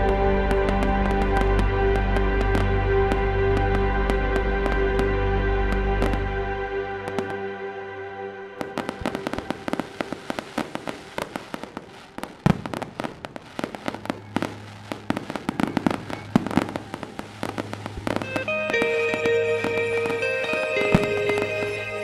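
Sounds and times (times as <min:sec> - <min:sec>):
music with sustained notes: 0:00.0 - 0:22.0
fireworks cracking and popping: 0:08.6 - 0:22.0.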